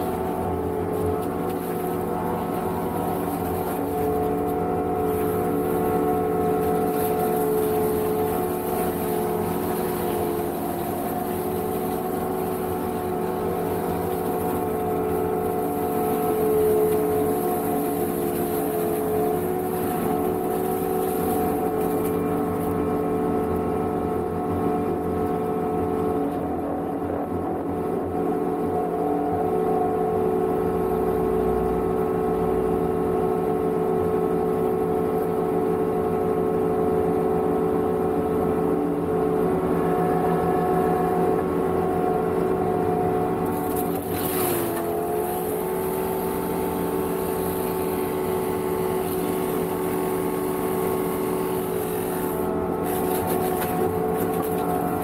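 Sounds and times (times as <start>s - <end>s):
boom mower running: 0.0s - 55.0s.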